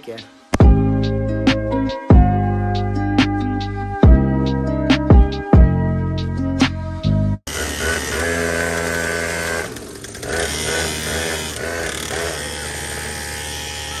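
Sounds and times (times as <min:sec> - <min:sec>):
small engine idling: 0:07.5 - 0:14.0.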